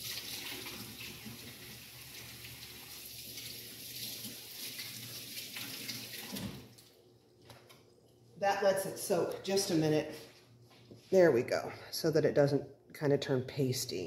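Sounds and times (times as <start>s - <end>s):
water running from a tap: 0.0s - 6.9s.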